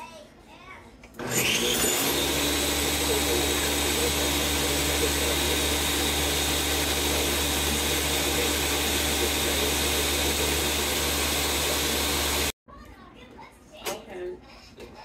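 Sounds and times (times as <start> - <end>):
blender running: 1.2 - 12.6.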